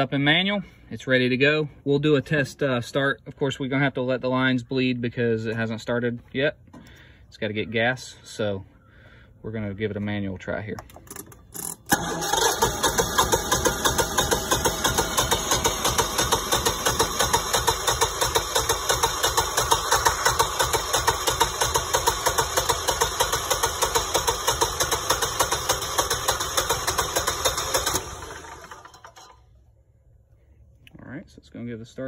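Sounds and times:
starter cranking generator engine: 10.8s - 29.5s.

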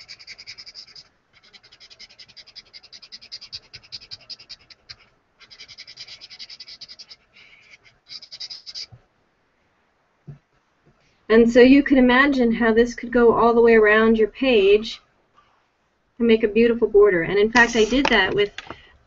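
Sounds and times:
scratchy rubbing on paper: 0.0s - 9.0s, 17.6s - 18.1s.

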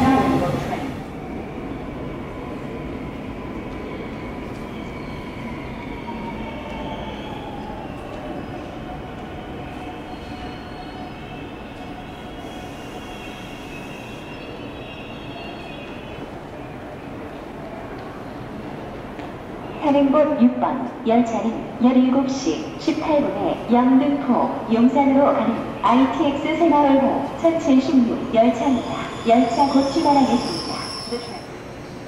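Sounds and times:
train rumbling: 0.0s - 19.6s
high wheel and brake squeals: 28.7s - 31.6s.

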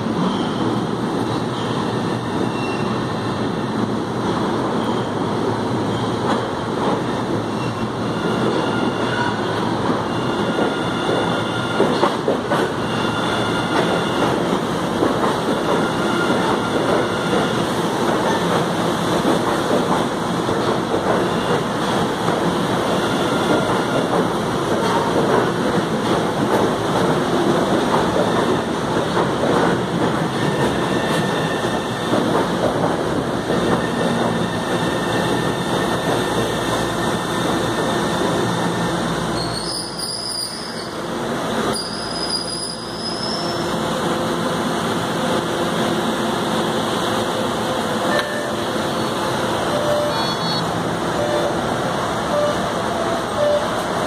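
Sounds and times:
subway train rumbling: 0.0s - 54.0s
short high tones: 49.7s - 51.6s.

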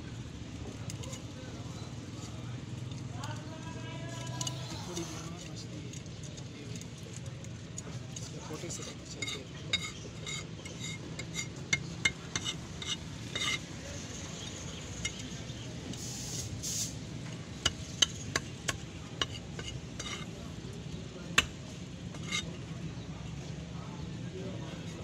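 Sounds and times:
knife scraping: 4.3s - 5.5s, 8.5s - 13.7s, 19.2s - 20.4s, 22.1s - 22.6s.

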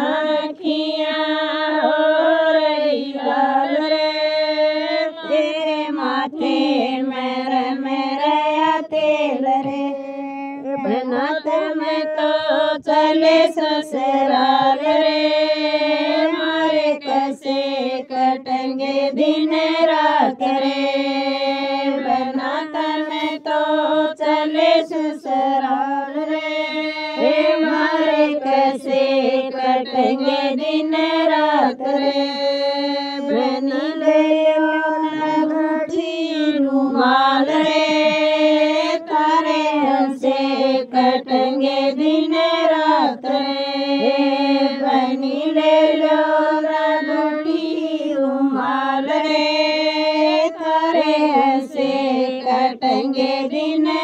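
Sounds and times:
woman singing folk song: 3.2s - 23.6s, 24.3s - 45.6s.

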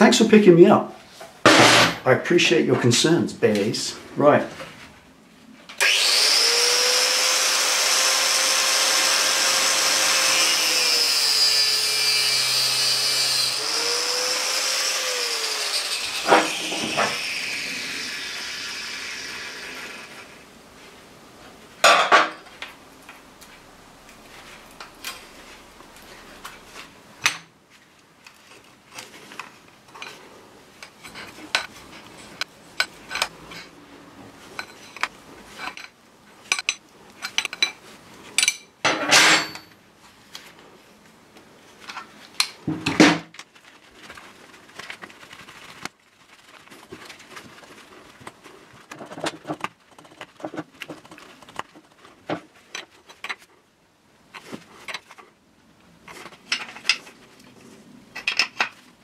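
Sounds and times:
angle grinder cutting hose: 5.8s - 20.4s.

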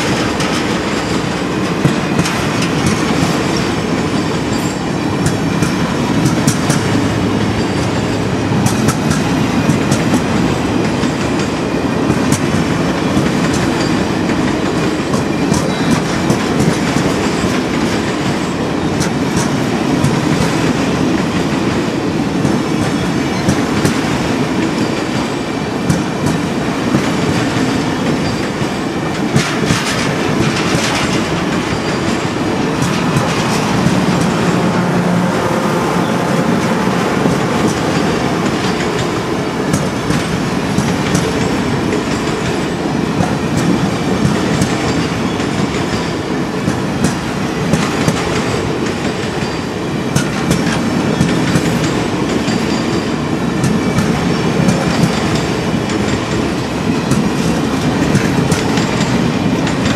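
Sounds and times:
train wheels clicking over rail joints: 0.0s - 59.9s.

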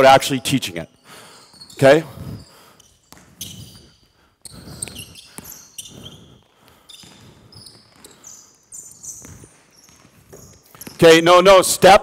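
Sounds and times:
sneakers squeaking on court: 0.8s - 11.5s
basketball bouncing on wood floor: 3.1s - 3.8s, 6.9s - 8.2s, 9.1s - 11.0s.

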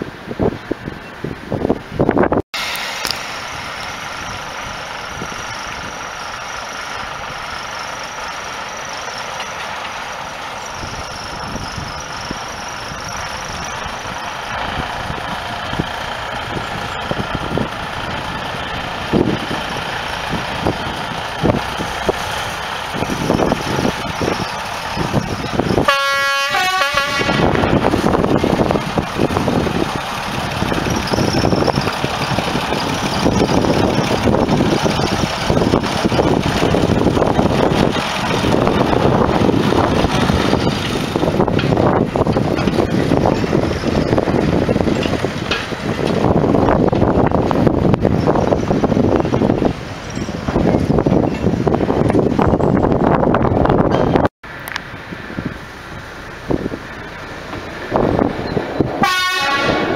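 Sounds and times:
diesel locomotive running: 0.0s - 59.9s
train horn blast: 25.8s - 27.8s, 59.0s - 59.9s.

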